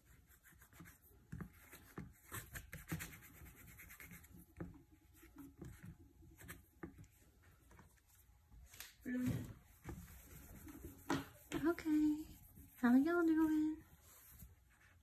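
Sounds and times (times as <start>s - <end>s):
hand rubbing whiteboard: 0.0s - 8.2s, 9.4s - 15.0s
hand tapping whiteboard: 10.7s - 11.7s.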